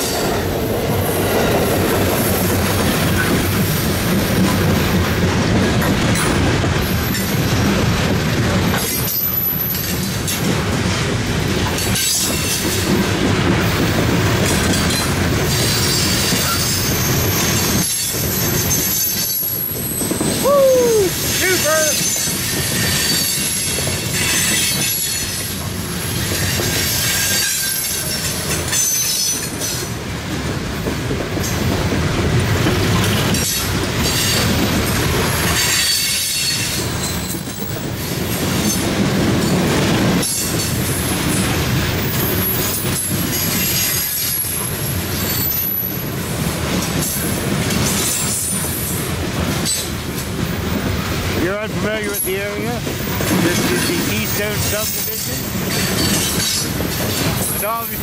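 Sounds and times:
freight train rumbling on rails: 0.0 - 58.0
train wheel squeal: 6.2 - 7.6, 8.7 - 10.4, 11.7 - 13.0, 14.4 - 30.0, 33.0 - 39.6, 40.2 - 50.0, 52.0 - 58.0.

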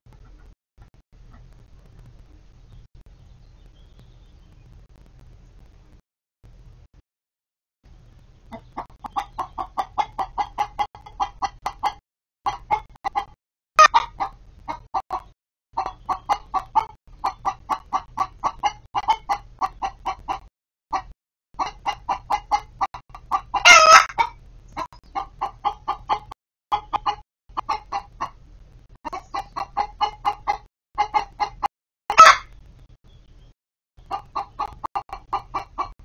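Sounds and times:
hens clucking: 8.5 - 32.6, 34.0 - 36.0
hen squawk: 11.8 - 15.2, 23.3 - 24.4, 29.1 - 32.5.

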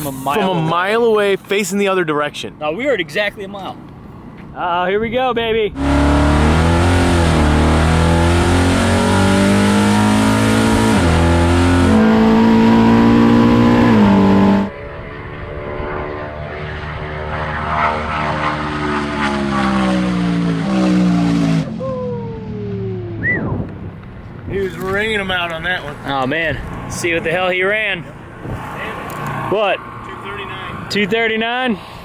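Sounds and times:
car engine at full throttle: 5.8 - 25.0, 25.7 - 31.0.

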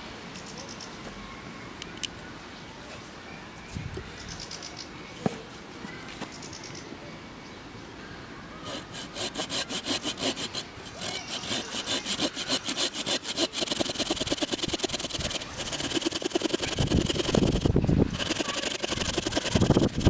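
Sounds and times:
hand saw cutting log: 8.7 - 20.0.

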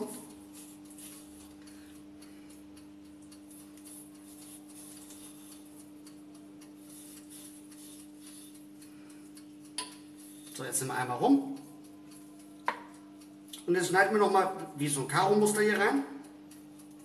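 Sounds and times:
knife scoring pork rind: 0.0 - 13.1
steady low hum: 0.0 - 17.0.

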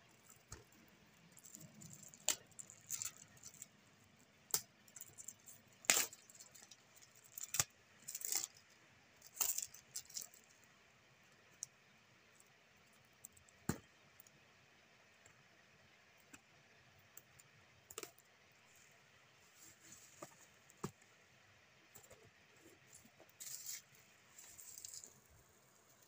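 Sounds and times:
plastic and card crinkling: 0.1 - 3.8, 4.5 - 10.6, 22.1 - 26.0.

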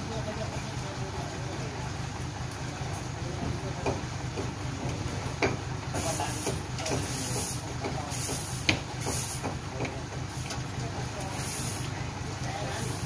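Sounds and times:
truck engine running: 0.0 - 13.0
short high hiss bursts: 11.3 - 11.9.

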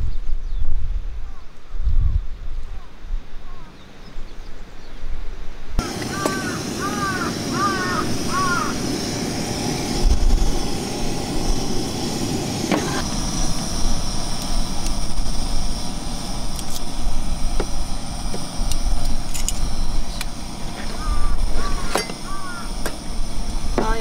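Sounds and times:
low outdoor rumble: 5.8 - 24.0.

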